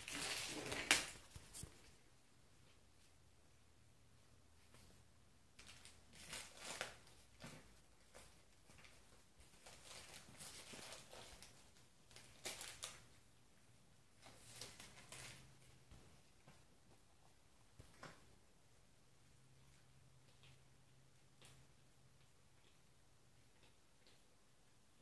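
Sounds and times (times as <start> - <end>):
cat rustling on tile floor: 0.0 - 3.2, 4.6 - 18.4.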